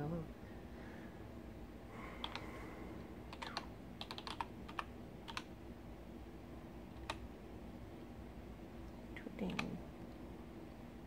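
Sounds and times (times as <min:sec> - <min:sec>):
computer keyboard typing: 0:02.2 - 0:02.5, 0:03.3 - 0:05.5, 0:06.9 - 0:07.2, 0:09.5 - 0:09.8.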